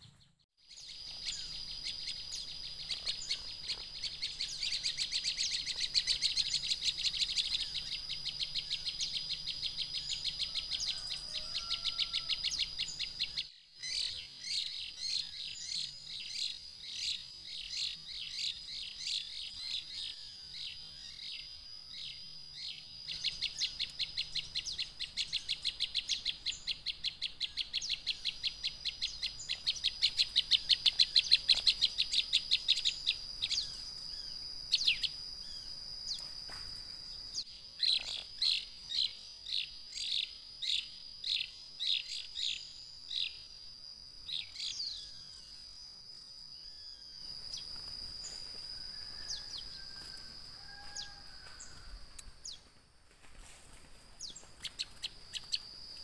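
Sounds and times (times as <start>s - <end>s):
bird sharp high chirps: 54.2s - 55.6s.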